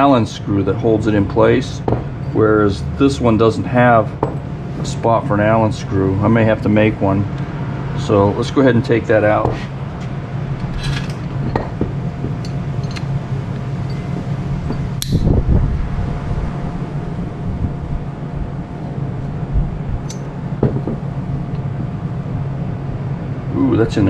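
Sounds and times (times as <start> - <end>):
steady low hum: 0.0 - 24.0
metal clank: 10.7 - 11.8.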